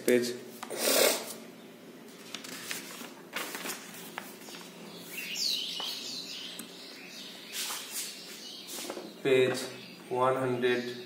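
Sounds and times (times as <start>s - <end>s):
book pages turning: 2.1s - 4.8s
bird chirping: 4.0s - 11.0s.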